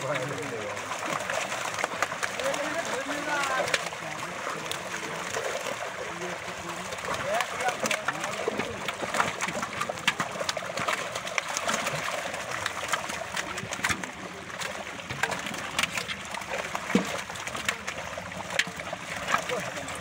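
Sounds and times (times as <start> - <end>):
fish splashing in water: 0.0 - 20.0.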